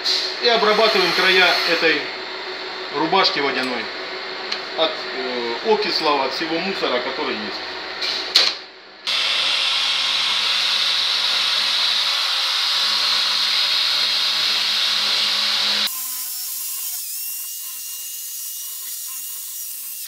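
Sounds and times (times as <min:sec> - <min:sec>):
drill whine: 0:00.4 - 0:02.1, 0:09.1 - 0:19.9
drill burr grinding metal: 0:00.5 - 0:02.0, 0:09.1 - 0:20.0.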